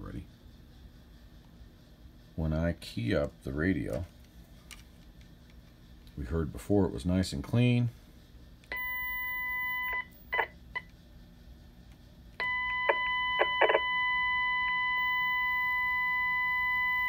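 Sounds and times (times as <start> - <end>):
steady radio tone over hum: 0.0 - 0.4, 5.6 - 11.0, 12.4 - 17.0.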